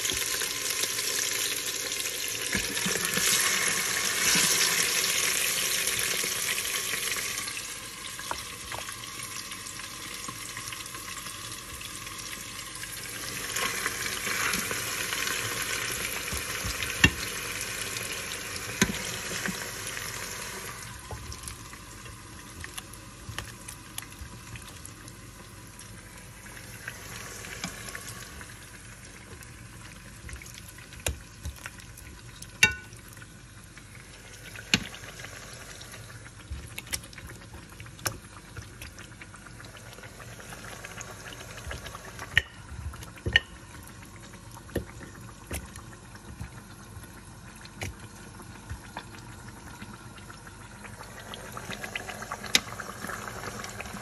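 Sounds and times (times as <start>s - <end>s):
meat sizzling in a pot: 0.0s - 54.0s.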